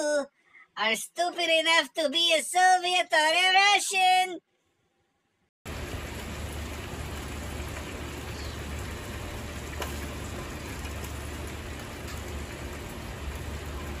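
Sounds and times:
fire crackle: 5.7s - 14.0s
gas grill fire hissing and rumbling: 5.7s - 14.0s.

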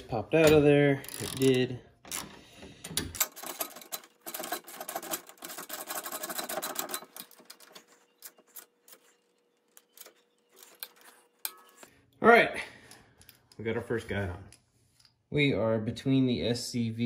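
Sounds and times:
ratchet wrench clicking: 1.0s - 1.6s.

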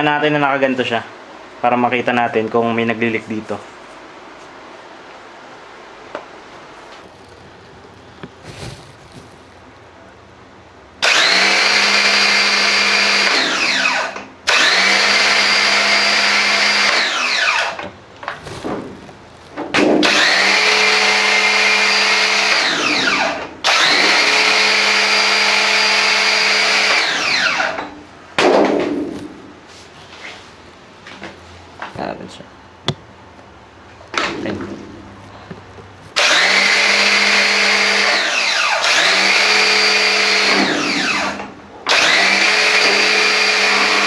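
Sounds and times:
pressure washer motor and pump: 11.0s - 18.0s, 19.7s - 28.0s, 36.2s - 44.0s.

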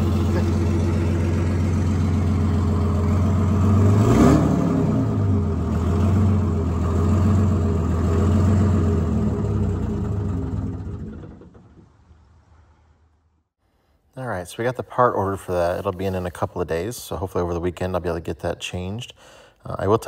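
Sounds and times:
diesel engine running and revving: 0.0s - 11.8s.

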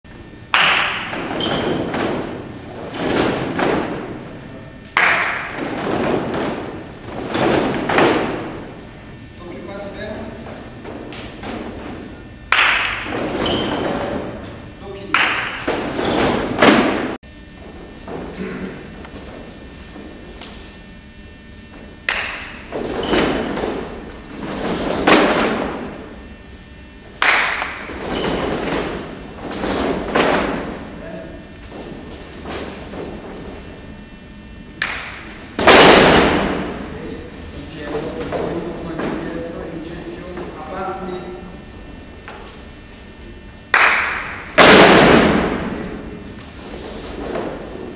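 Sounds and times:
heavy foot thumps echoing: 0.3s - 40.9s, 41.5s - 47.9s
feet stamping and shuffling: 5.3s - 9.1s, 13.0s - 40.6s, 44.6s - 47.9s.

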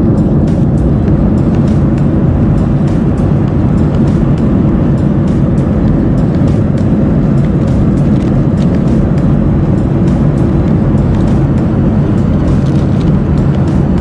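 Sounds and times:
airliner cabin drone: 0.0s - 14.0s.

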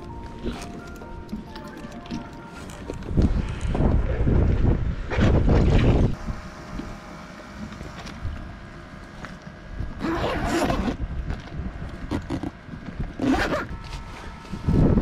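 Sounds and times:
wind buffeting microphone: 3.0s - 6.5s, 11.0s - 15.0s
rustling scrape: 13.3s - 14.9s.

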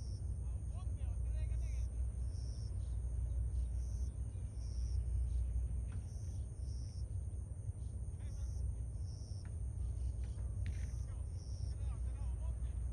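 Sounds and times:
faint high whine: 0.0s - 12.9s
insects chirping: 0.0s - 12.9s
steady low rumble: 0.0s - 12.9s.

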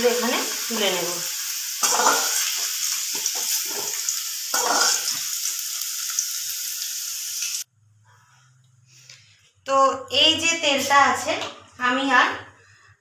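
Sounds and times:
potatoes sizzling in oil: 0.0s - 7.7s
metal spatula scraping pan: 1.8s - 5.2s.

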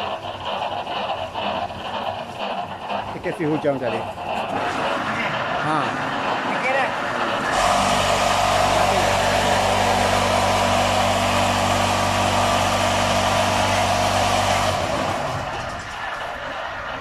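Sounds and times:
electric motor hum and whirr: 4.5s - 15.8s.

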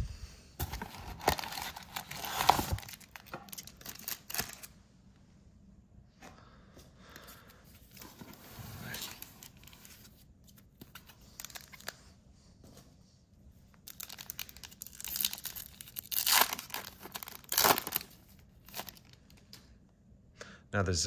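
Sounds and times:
card packaging tearing and crinkling: 0.6s - 4.7s, 10.9s - 12.0s, 13.8s - 19.2s.

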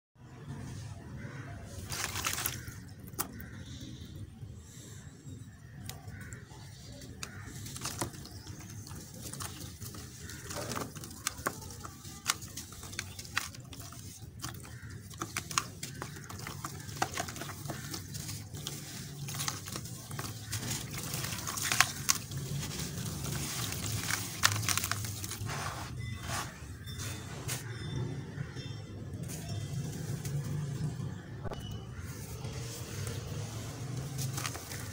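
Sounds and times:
dirt crumbling into water: 1.8s - 3.6s, 6.0s - 25.7s.

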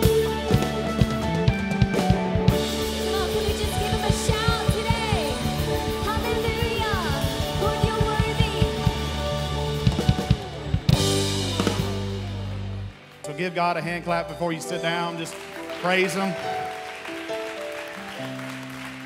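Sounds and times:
drum kit fast beat: 0.0s - 13.0s
worship band playing: 0.0s - 19.0s
woman singing: 3.1s - 9.0s.

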